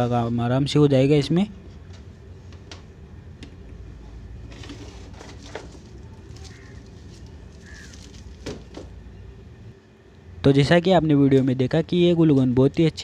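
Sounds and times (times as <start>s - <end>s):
low steady hum: 0.0s - 13.0s
plastic bag rustling: 4.4s - 9.0s.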